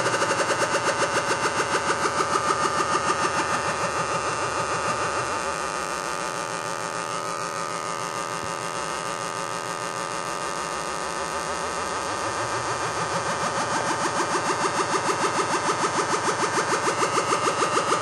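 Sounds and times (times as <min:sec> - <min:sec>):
buzzy wobbling electronic tone: 0:02.4 - 0:13.8.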